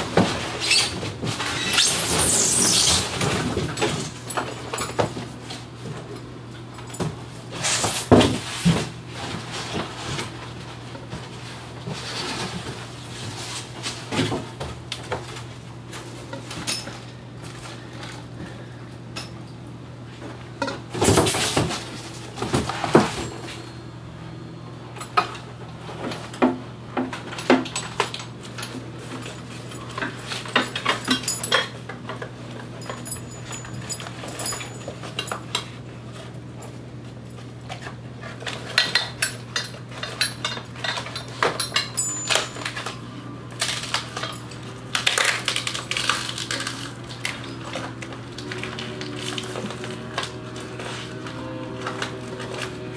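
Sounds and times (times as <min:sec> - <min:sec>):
metallic clinks and rattles: 0:27.8 - 0:31.8, 0:32.8 - 0:35.6, 0:38.9 - 0:43.0.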